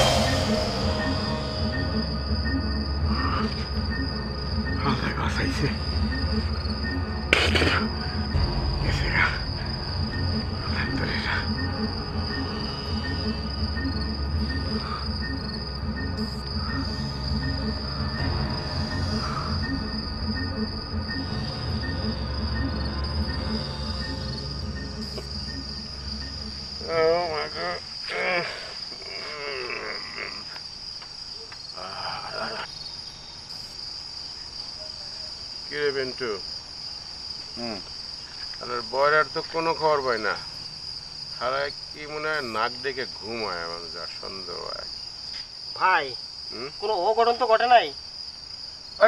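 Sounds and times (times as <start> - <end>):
crickets chirping: 0.0 - 49.0.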